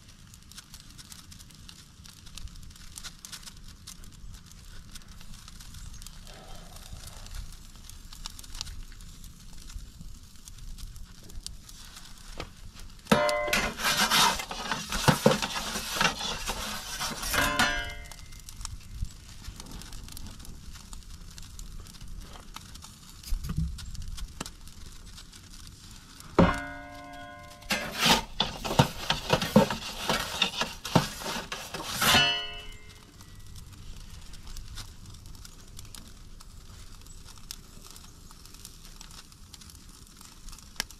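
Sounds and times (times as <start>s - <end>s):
ringing tones: 13.1s - 13.7s, 26.4s - 27.8s
pizza peel scraping and clattering: 13.1s - 18.3s, 26.4s - 33.0s.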